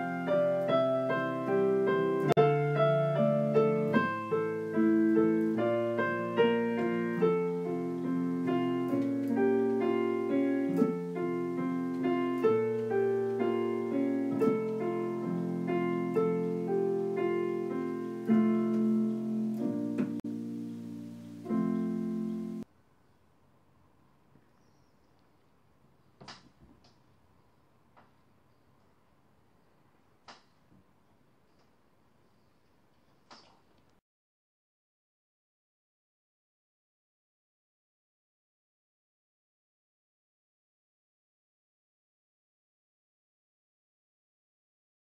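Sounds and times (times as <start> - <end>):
solo piano playing slow chords: 0.0 - 22.7.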